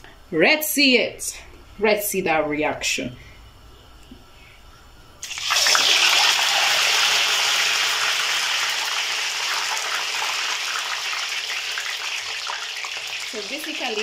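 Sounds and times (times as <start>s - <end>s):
plantain sizzling in hot oil: 5.2s - 14.0s.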